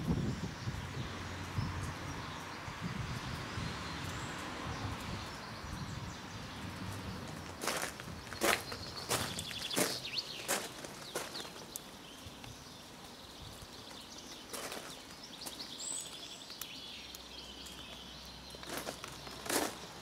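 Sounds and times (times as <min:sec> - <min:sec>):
birds chirping: 0:00.0 - 0:20.0
footsteps on gravel: 0:06.8 - 0:11.8, 0:13.8 - 0:16.3, 0:17.9 - 0:20.0.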